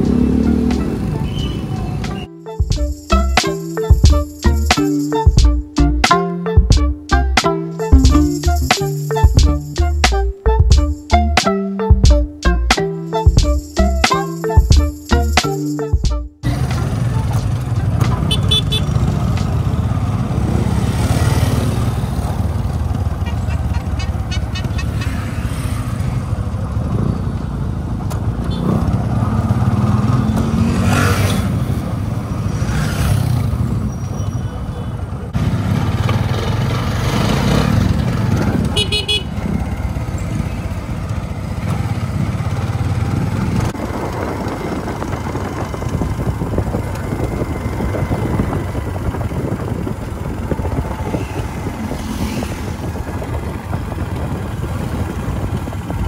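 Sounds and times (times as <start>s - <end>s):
vehicle horn toot: 18.1s - 19.0s, 38.7s - 39.4s
motorcycle engine running: 35.4s - 56.0s.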